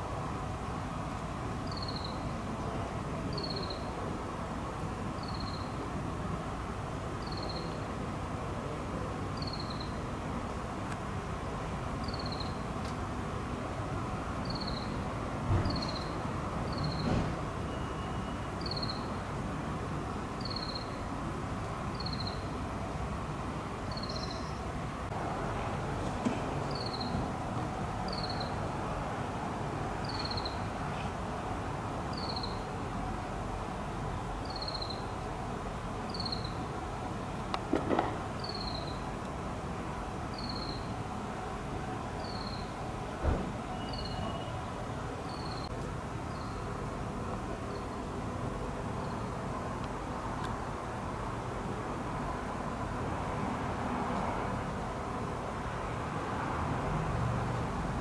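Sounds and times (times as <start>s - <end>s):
high falling chirp: 43.8s - 44.5s.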